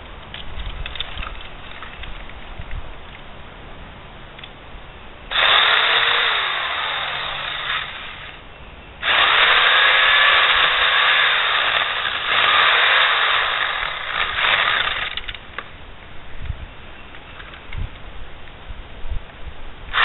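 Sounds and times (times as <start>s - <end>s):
electric saw cutting branches: 5.3s - 8.4s, 9.0s - 15.4s.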